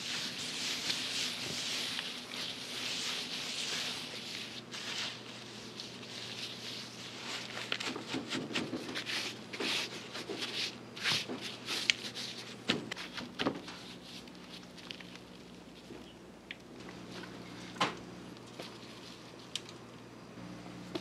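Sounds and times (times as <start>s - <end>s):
hands rubbing spice into meat: 0.0s - 7.7s
steady low hum: 0.0s - 21.0s.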